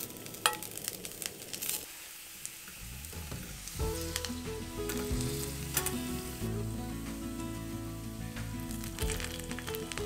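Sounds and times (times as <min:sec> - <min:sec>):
food sizzling in oil: 0:00.0 - 0:10.0
background music: 0:03.0 - 0:10.0.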